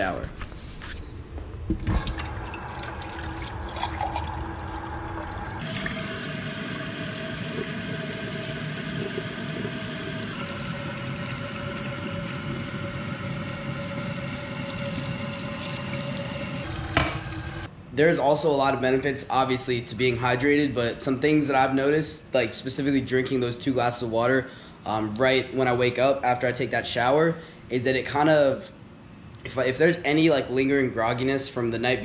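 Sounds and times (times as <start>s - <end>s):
water filling a glass from faucet: 2.0s - 17.7s.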